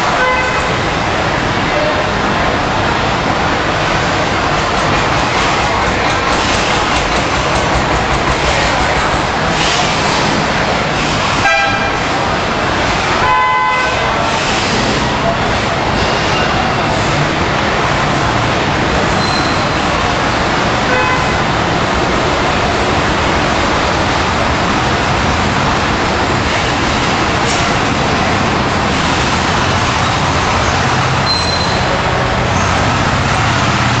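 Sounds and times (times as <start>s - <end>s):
thresher machine running: 4.5s - 10.4s.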